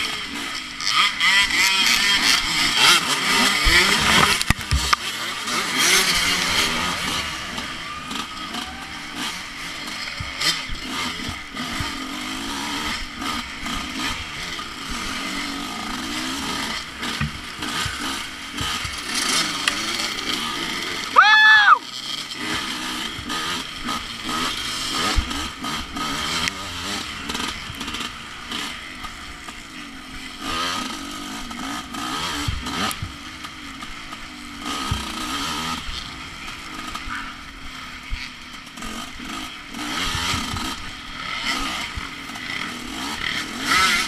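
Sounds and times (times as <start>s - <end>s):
dirt bike engine revving: 0.0s - 44.0s
knocks from rough ground: 3.6s - 5.1s, 17.1s - 18.0s.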